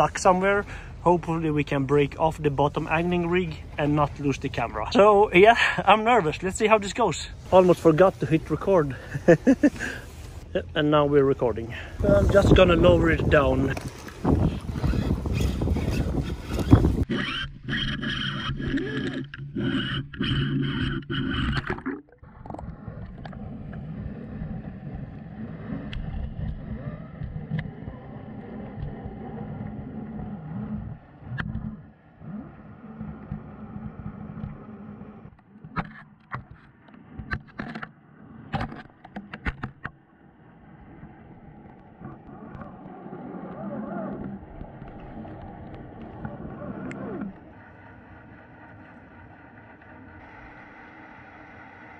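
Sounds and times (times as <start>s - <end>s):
muffled underwater rumble: 7.3s - 51.9s
sharp clicks and knocks: 35.3s - 37.9s, 38.5s - 40.0s.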